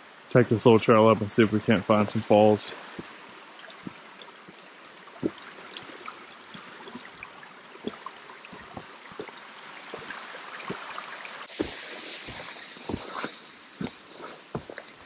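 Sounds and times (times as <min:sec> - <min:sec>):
creek running: 0:00.0 - 0:15.0
footsteps on gravel: 0:07.8 - 0:10.9, 0:11.5 - 0:15.0.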